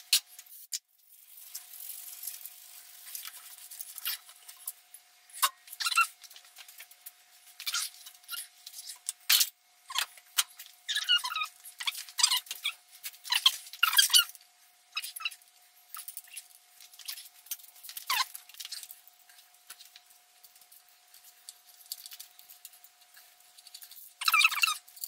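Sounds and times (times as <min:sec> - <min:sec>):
metal parts clicking and scraping: 0:00.0 - 0:14.4, 0:15.0 - 0:25.0
squeaky chirps: 0:05.3 - 0:06.2, 0:10.8 - 0:14.3, 0:14.9 - 0:15.4, 0:18.0 - 0:18.4, 0:24.2 - 0:24.9.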